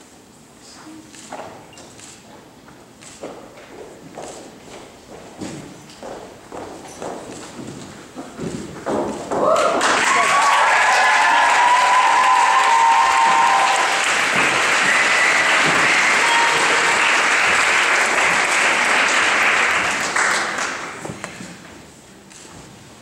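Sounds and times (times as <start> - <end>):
audience applauding: 9.5 - 21.0.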